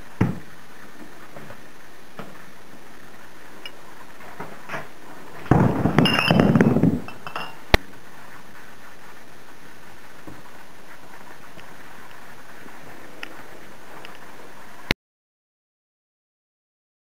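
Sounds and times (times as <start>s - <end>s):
glass bottles clinking: 6.0s - 7.6s.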